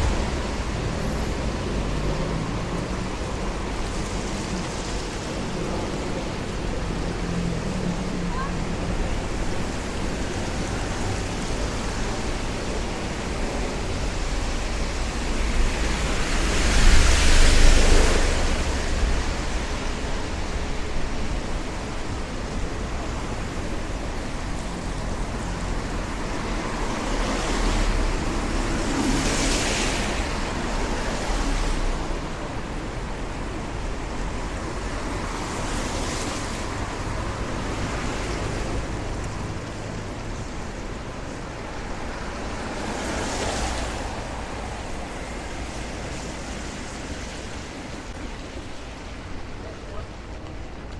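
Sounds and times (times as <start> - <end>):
cars passing on wet road: 0.0 - 50.9
rain hiss: 0.0 - 50.9.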